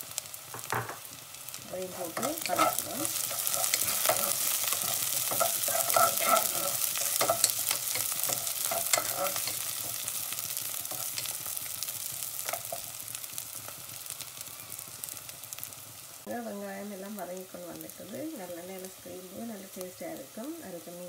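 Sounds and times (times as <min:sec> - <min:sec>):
oil sizzling in a pan: 0:00.0 - 0:21.0
wooden spatula scraping a pan: 0:01.9 - 0:10.1.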